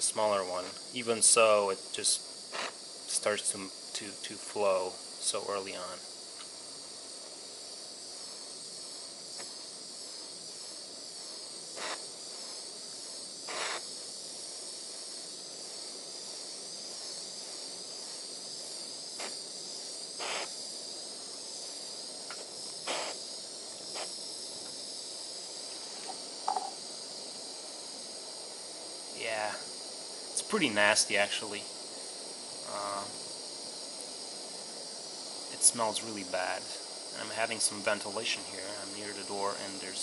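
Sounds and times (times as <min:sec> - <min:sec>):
torch flame hissing: 0:00.0 - 0:40.0
short pops: 0:22.2 - 0:23.2.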